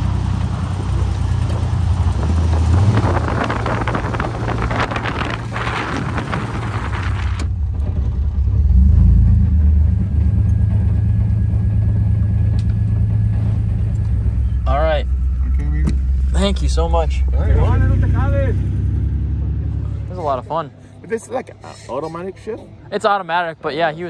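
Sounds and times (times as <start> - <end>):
tyres on gravel: 0.0 - 7.6
truck engine rumbling: 0.0 - 24.0
wind: 0.0 - 24.0.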